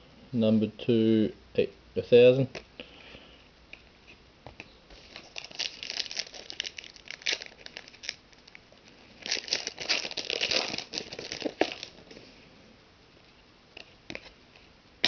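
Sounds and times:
foil pack crinkling and tearing: 5.0s - 12.0s.

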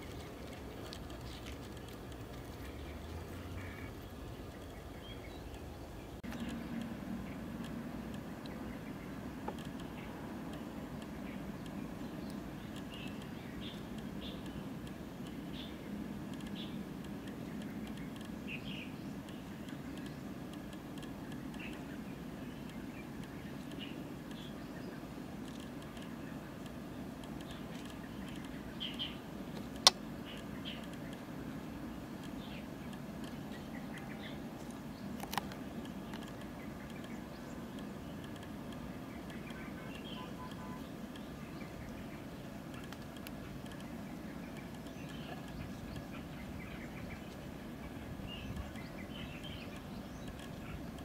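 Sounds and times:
light ticks: 0.0s - 47.5s, 48.2s - 51.0s
steady low rumble: 0.0s - 51.0s
faint bird chirps: 21.2s - 29.3s, 36.0s - 51.0s
faint high chirps: 39.2s - 42.3s.

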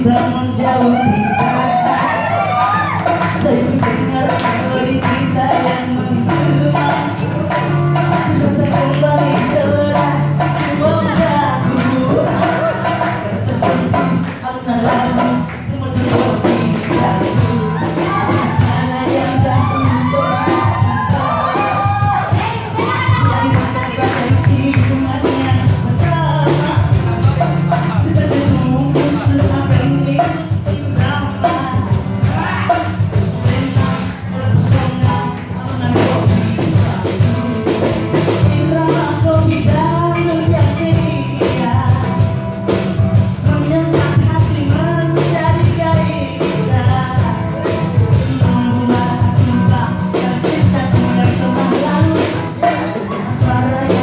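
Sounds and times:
women singing through microphones: 0.0s - 7.4s, 8.2s - 27.1s, 43.6s - 54.0s
acoustic guitar: 0.0s - 54.0s
drums with driving beat: 0.0s - 54.0s.

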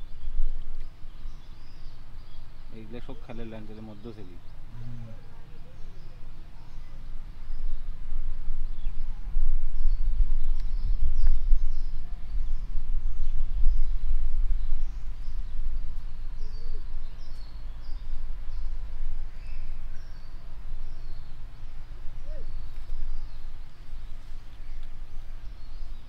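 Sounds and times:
small birds chirping: 0.0s - 26.0s
loud low rumble: 4.5s - 24.2s.

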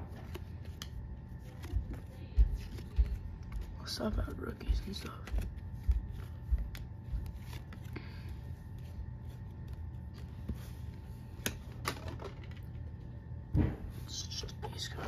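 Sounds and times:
cards clicking and sliding: 0.0s - 3.8s, 8.7s - 12.6s
steady low hum: 0.0s - 15.0s.

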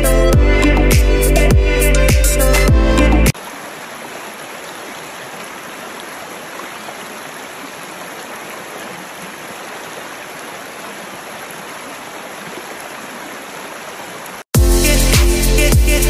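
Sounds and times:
river flowing over stones: 3.3s - 14.5s.

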